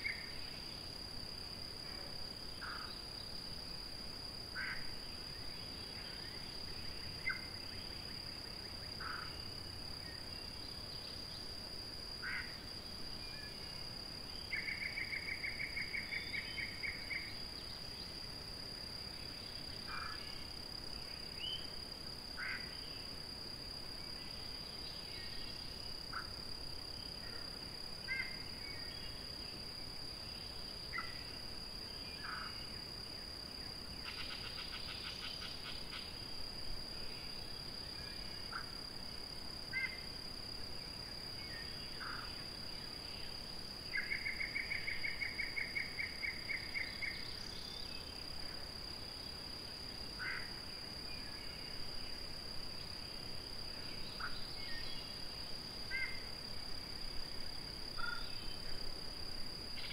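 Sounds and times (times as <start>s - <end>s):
high-pitched insect drone: 30.2s - 38.8s.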